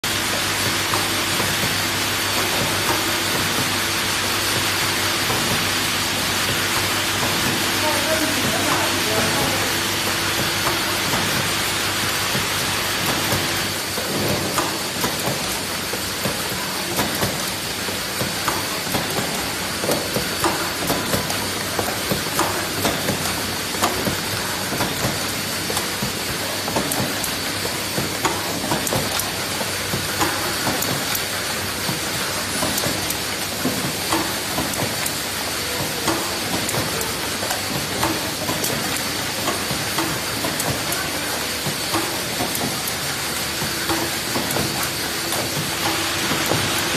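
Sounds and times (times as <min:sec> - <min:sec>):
machine clicks and knocks: 0:10.4 - 0:46.9.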